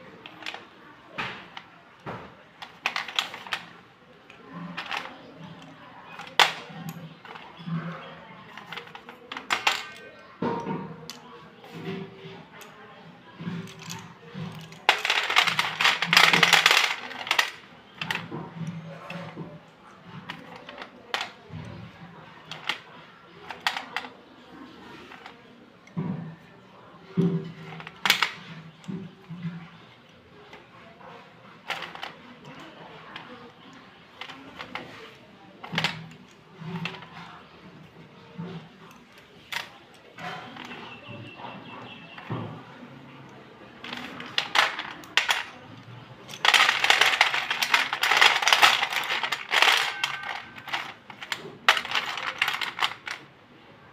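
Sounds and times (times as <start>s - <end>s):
slate pencils clattering: 0.0s - 26.0s, 27.2s - 29.6s, 31.4s - 53.3s
pencil clicks: 46.3s - 53.2s.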